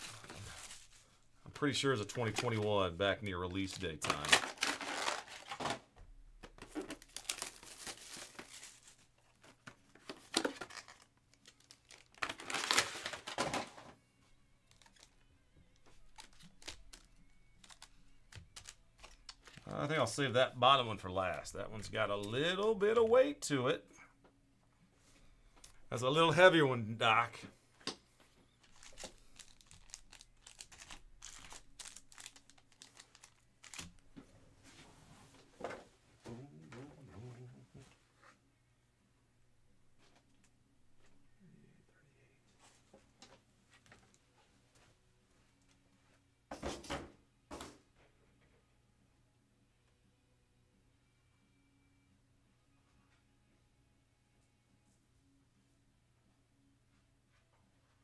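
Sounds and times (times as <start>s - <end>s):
card packs crinkling: 0.0s - 5.8s, 6.5s - 13.9s, 14.6s - 15.2s, 15.8s - 20.2s, 28.6s - 34.2s.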